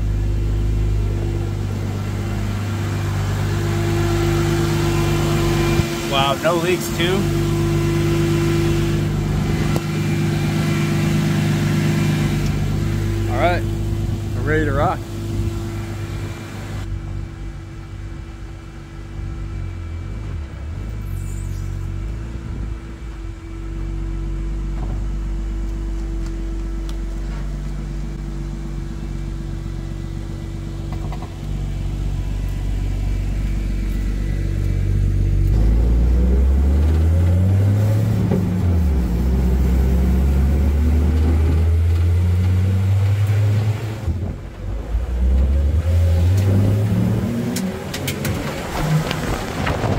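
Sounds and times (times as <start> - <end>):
car engine revving: 0.0 - 17.0, 27.3 - 49.9
car engine idling: 0.0 - 49.9.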